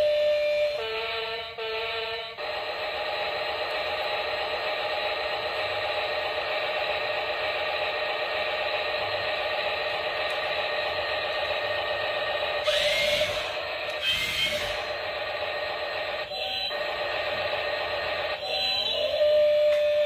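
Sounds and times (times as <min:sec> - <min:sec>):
toy excavator whirring: 0:08.7 - 0:20.0.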